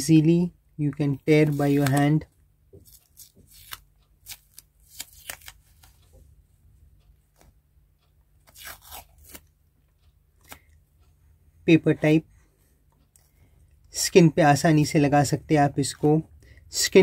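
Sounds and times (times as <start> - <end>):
paper tape crackling rustles: 1.2 - 2.2, 2.8 - 6.1.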